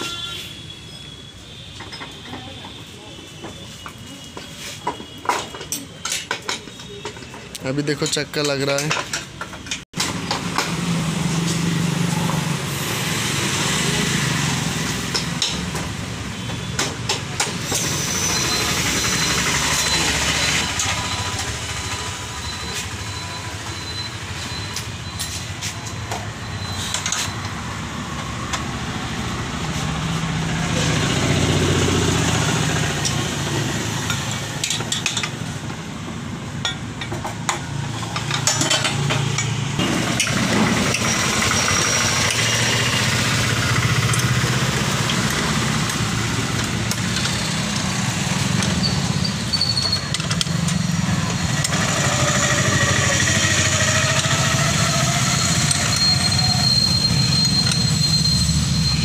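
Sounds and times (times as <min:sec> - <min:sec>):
engine running: 0:28.2 - 0:59.0
metal clicks and knocks: 0:34.0 - 0:35.9, 0:36.5 - 0:39.6.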